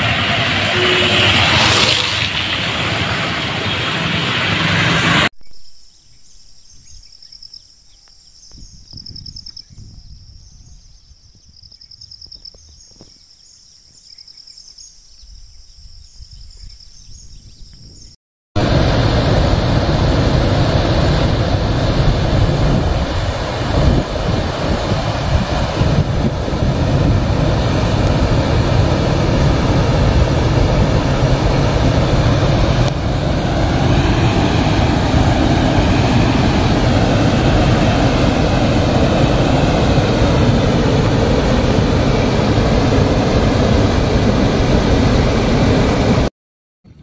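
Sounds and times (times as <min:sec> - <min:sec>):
floodwater pouring over weir: 0:00.0 - 0:05.0
motorcycle passing on wet road: 0:00.0 - 0:05.3
traffic noise: 0:00.0 - 0:05.3.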